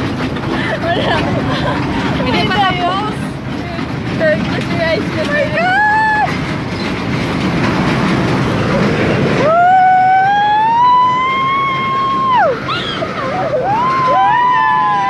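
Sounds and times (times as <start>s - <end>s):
ride car rumbling and rattling: 0.0s - 15.0s
long high wail: 9.4s - 15.0s.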